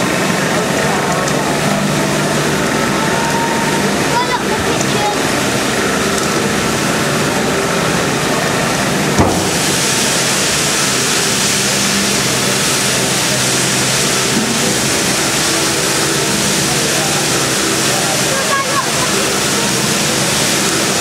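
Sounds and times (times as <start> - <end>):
steam hissing from safety valves: 1.0 - 21.0
sharp knock: 9.2 - 9.9.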